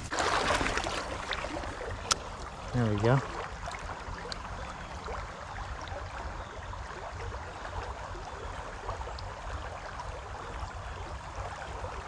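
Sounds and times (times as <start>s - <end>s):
creek rushing: 0.0s - 6.4s.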